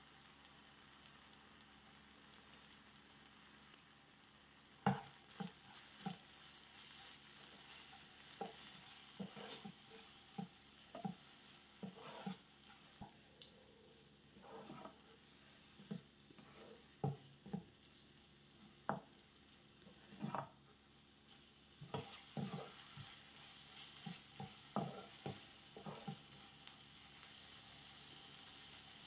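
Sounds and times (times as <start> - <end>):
faint sizzle: 0.0 - 29.0
utensil scraping a frying pan: 4.9 - 13.2, 13.9 - 17.7, 19.8 - 20.6, 21.3 - 26.4.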